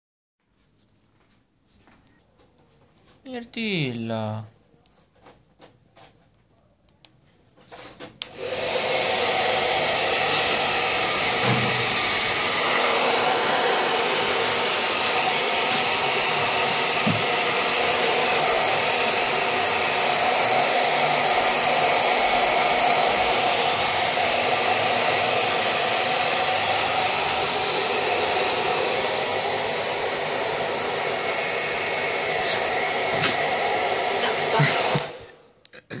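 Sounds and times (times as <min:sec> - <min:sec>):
hair dryer blowing: 0:08.2 - 0:35.6.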